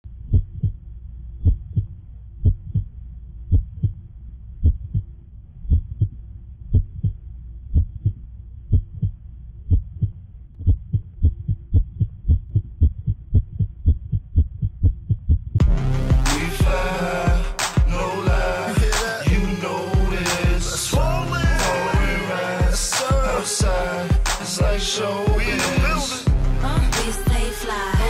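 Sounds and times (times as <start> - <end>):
low hum: 0.0 - 28.0
heartbeat thumps: 0.2 - 0.8, 1.4 - 28.0.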